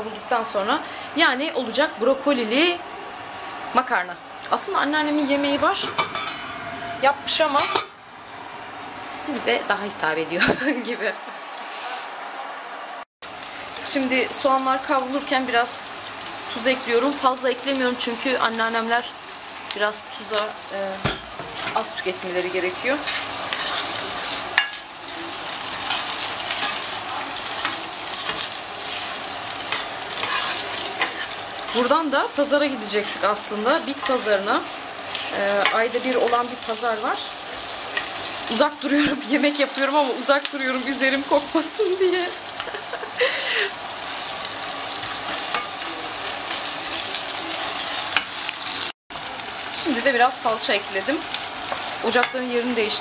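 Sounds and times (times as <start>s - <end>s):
onions sizzling in oil: 0.0s - 8.4s, 13.2s - 53.0s
spatula scraping pan: 21.0s - 32.0s
plastic spatula scraping a pan: 30.2s - 31.4s.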